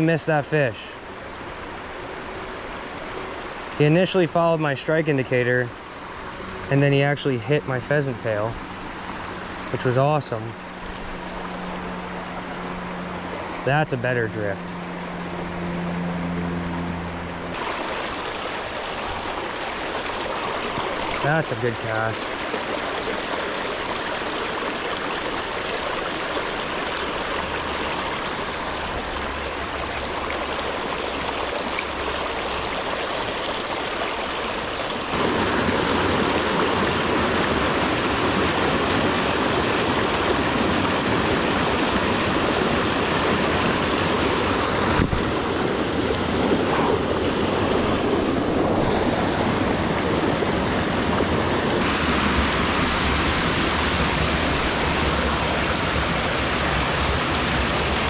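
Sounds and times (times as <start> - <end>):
creek running over stones: 17.5 - 48.9, 50.9 - 58.0
cascade of white water: 17.5 - 58.0.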